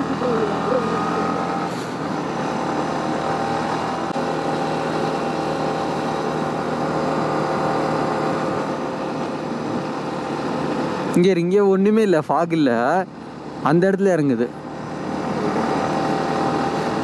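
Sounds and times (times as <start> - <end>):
motorcycle engine running: 0.0 - 11.6
wind and road noise: 0.0 - 17.0.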